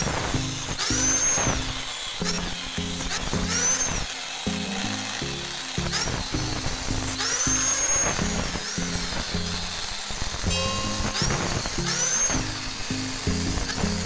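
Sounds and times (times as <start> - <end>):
angle grinder cutting steel: 0.0 - 14.0
background music: 4.5 - 14.0.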